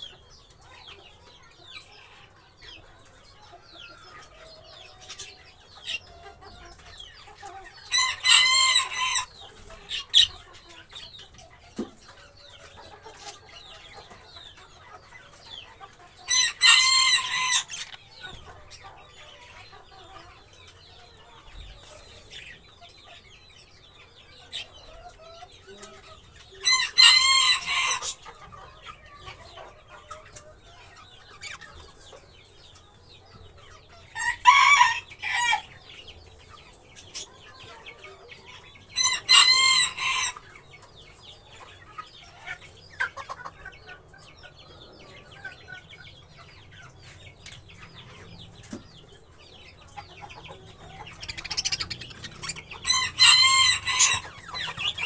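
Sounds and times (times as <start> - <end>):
budgerigars chirping and chattering: 0.0 - 55.0
rooster crowing: 7.9 - 9.4, 16.3 - 17.7, 26.7 - 28.2, 34.2 - 35.7, 39.0 - 40.4, 52.8 - 55.0.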